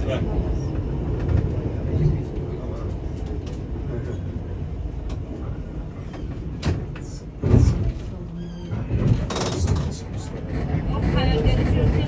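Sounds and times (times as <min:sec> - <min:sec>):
tram wheels rumbling: 0:00.0 - 0:12.0.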